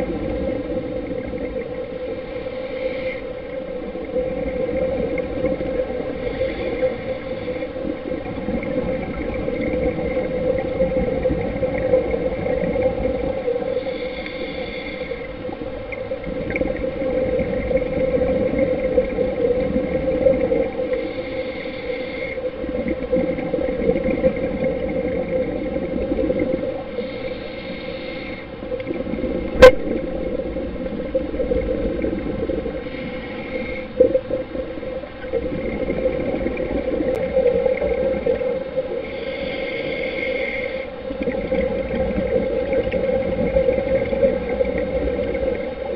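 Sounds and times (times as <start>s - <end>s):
exhaled bubbles gurgling: 0.0s - 45.9s
diver's regulator breathing: 2.0s - 3.7s, 6.0s - 8.2s, 13.5s - 15.6s, 20.6s - 22.9s, 26.6s - 29.6s, 32.5s - 35.0s, 38.2s - 43.3s.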